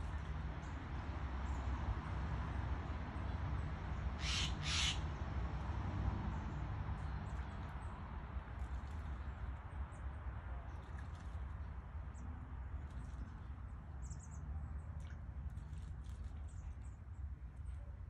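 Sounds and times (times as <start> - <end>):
jay harsh calls: 4.2 - 5.0.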